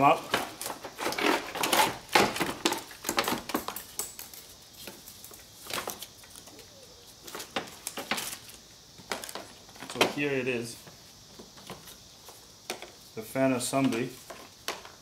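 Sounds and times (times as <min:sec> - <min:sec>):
plastic knocks scrapes and rattles: 0:00.3 - 0:03.8.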